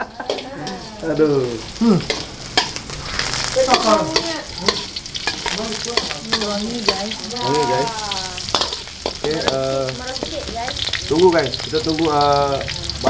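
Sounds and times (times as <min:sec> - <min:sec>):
frying in hot oil: 0:00.0 - 0:13.0
metal spatula scraping pan: 0:00.1 - 0:07.8, 0:08.4 - 0:10.9.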